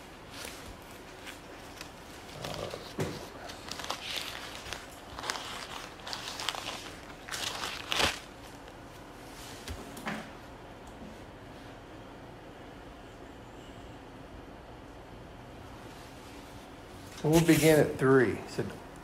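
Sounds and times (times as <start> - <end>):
thin pages turning: 0.2 - 8.8
paper rustling with small clicks: 0.3 - 8.8.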